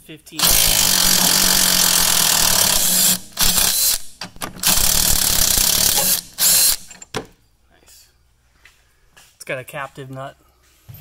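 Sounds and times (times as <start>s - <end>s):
impact wrench hammering: 0.4s - 7.3s.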